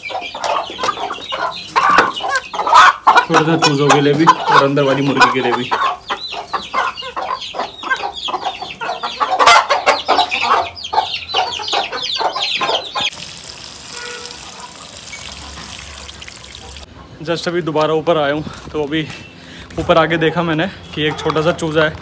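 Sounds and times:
chickens clucking: 0.0 - 13.2, 14.0 - 22.0
tap water running into bucket: 13.1 - 16.9.

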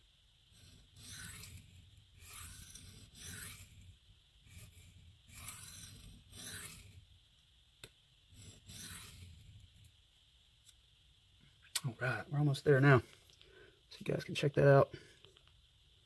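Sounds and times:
knife rasping on sharpening plate: 0.6 - 3.8, 4.5 - 7.0, 8.4 - 9.4.

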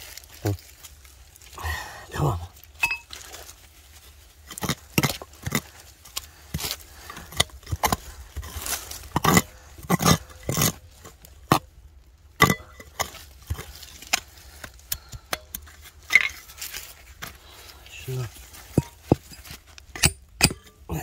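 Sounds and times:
digging tool striking stones: 4.4 - 11.7, 12.4 - 17.4, 18.1 - 21.0.

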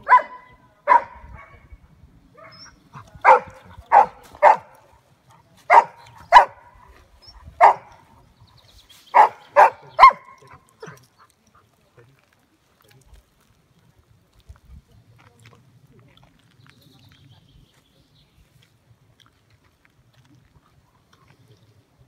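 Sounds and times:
dog barking: 0.0 - 1.6, 2.4 - 4.9, 5.7 - 6.8, 7.6 - 7.9, 9.1 - 11.0.

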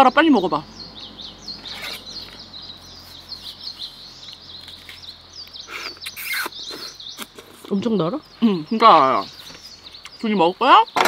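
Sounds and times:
songbird chirping: 0.0 - 11.0
watermelon being bitten: 5.7 - 7.6.

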